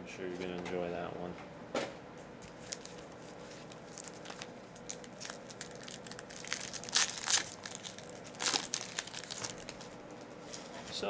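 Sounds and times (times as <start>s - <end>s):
plastic wrapper crinkling and tearing: 2.4s - 10.8s.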